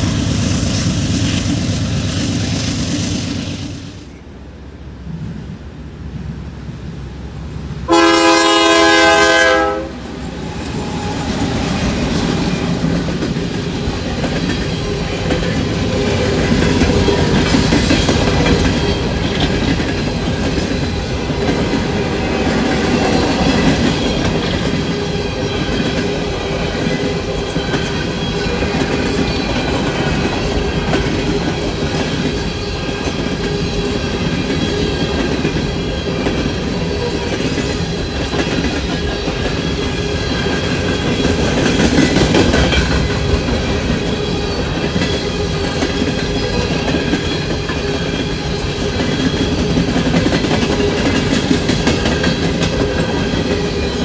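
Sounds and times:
freight train rolling past: 0.0 - 54.0
locomotive horn blast: 7.9 - 10.1
wheels clicking over rail joints: 10.1 - 54.0.

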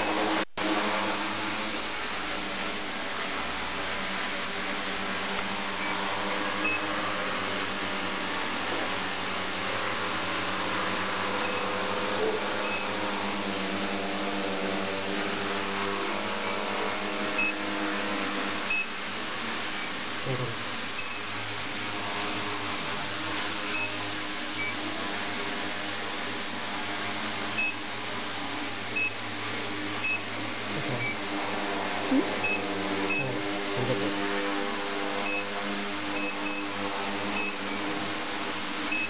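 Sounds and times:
drone propellers whining: 5.0 - 25.5, 28.5 - 39.0.

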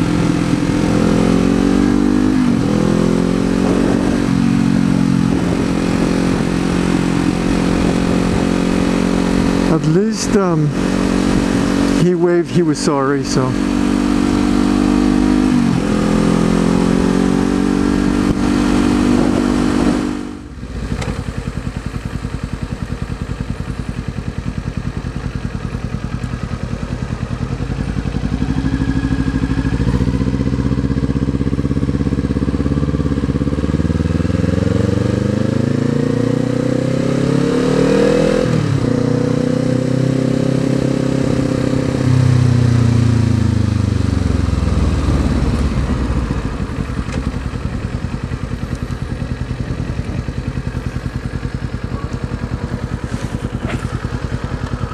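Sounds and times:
motorcycle engine accelerating: 0.0 - 54.9
motorcycle engine idling: 20.4 - 34.4, 41.2 - 54.9.

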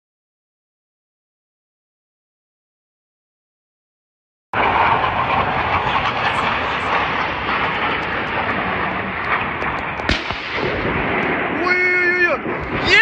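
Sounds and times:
jet engines roaring past: 4.6 - 13.0
sharp bang: 5.4 - 13.0.

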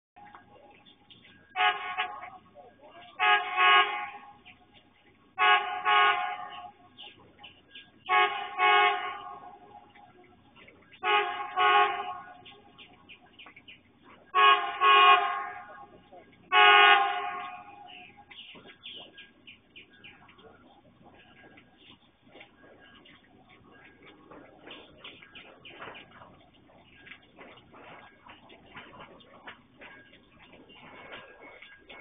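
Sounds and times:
train horn double blasts: 1.5 - 2.4, 3.2 - 4.4, 5.4 - 6.8, 8.0 - 9.9, 11.0 - 12.5, 14.3 - 18.1.

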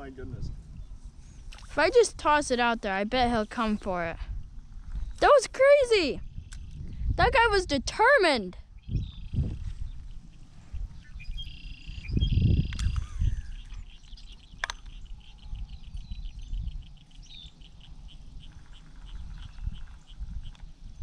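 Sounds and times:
birds chirping and trilling: 0.0 - 21.0
sharp click: 14.6 - 15.0.

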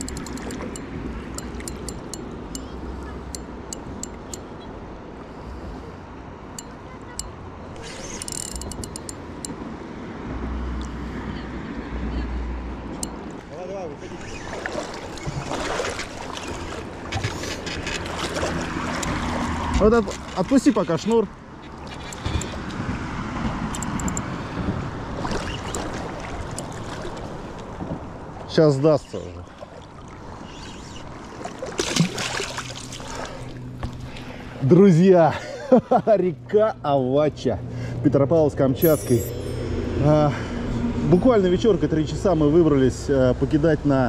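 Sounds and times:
fishing reel clicking: 0.0 - 0.8, 1.4 - 2.7, 7.8 - 9.6, 23.7 - 24.2
river water rushing: 13.2 - 20.5, 31.1 - 33.6.

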